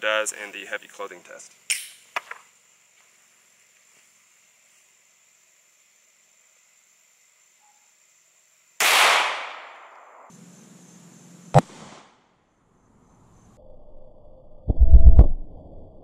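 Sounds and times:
pistol shot: 0:08.8 - 0:10.3.

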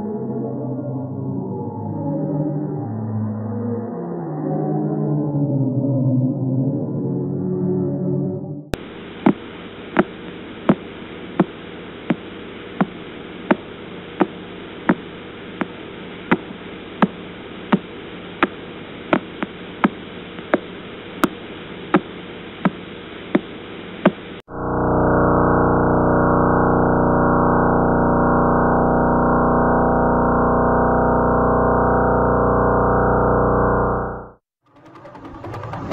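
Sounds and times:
loud pitched drone: 0:00.0 - 0:09.0, 0:24.5 - 0:35.9
steady hiss and hum: 0:08.8 - 0:24.4.

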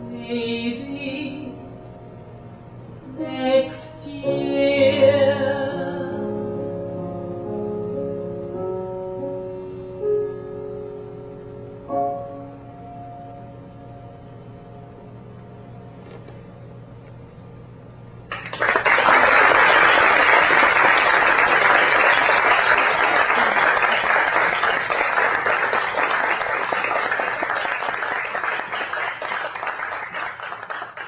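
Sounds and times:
audience applause: 0:18.3 - 0:31.0.

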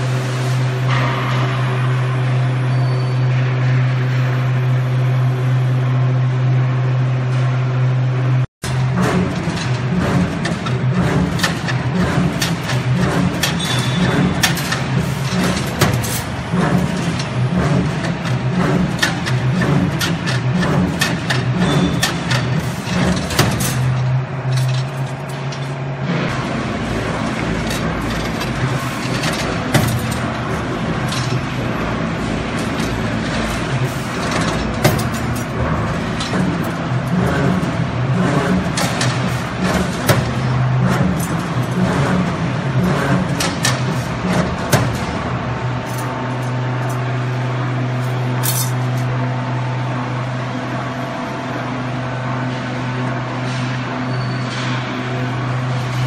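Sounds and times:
motor hum: 0:03.4 - 0:53.6
metal clicks and clanks: 0:08.6 - 0:25.8, 0:27.2 - 0:47.1, 0:48.0 - 0:49.1.

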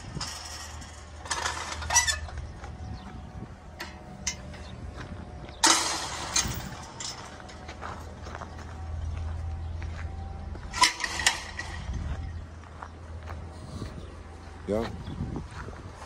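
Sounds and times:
metal gate latch rattling: 0:00.0 - 0:02.6, 0:03.7 - 0:04.8, 0:05.6 - 0:07.8, 0:10.7 - 0:12.0
footsteps scuffing on dry ground: 0:07.4 - 0:10.8, 0:11.6 - 0:16.0.

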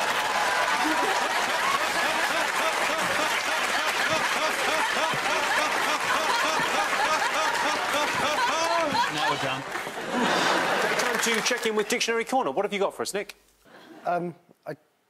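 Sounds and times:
audience laughing: 0:00.2 - 0:11.6.

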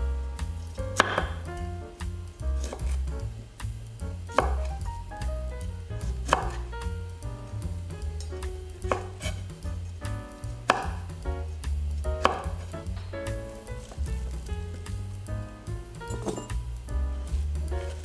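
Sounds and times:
background music with bass line: 0:00.0 - 0:18.0
knife chopping on cutting board: 0:01.0 - 0:01.4, 0:02.6 - 0:03.0, 0:04.3 - 0:04.8, 0:06.0 - 0:06.7, 0:08.4 - 0:09.5, 0:10.7 - 0:11.2, 0:12.1 - 0:12.8.

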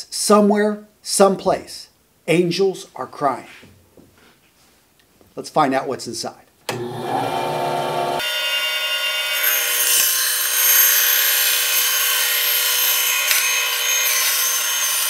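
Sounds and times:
band saw cutting leather: 0:06.7 - 0:15.0.

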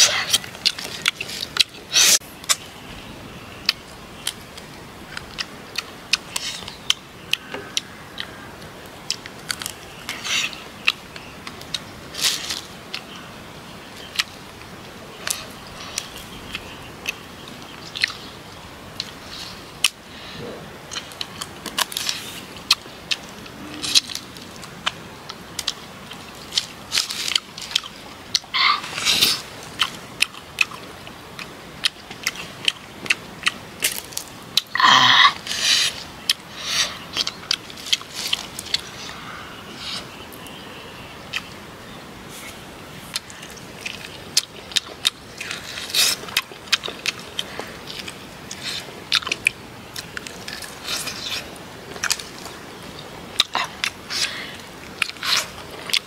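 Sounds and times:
person chewing food: 0:20.9 - 0:34.8, 0:37.1 - 0:39.2, 0:42.3 - 0:56.0.

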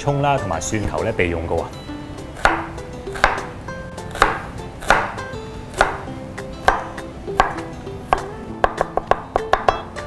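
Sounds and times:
knife chopping on wooden board: 0:02.4 - 0:03.5, 0:04.1 - 0:09.9.

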